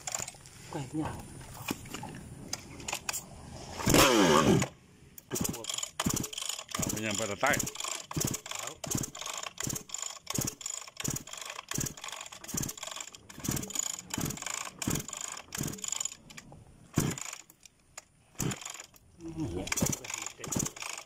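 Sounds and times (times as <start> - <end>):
metallic clicking of hand tool: 2.5 - 21.0.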